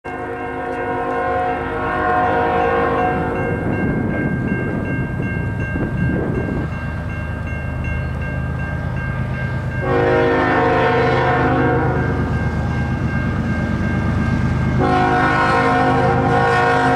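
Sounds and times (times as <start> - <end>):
train rumble: 0.0 - 16.9
locomotive air horn blast: 0.1 - 3.4, 9.8 - 12.3, 14.8 - 16.9.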